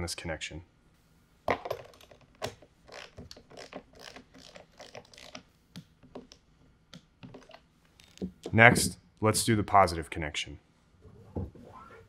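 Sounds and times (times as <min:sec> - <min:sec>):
torque wrench ratcheting clicks: 0:02.9 - 0:05.4.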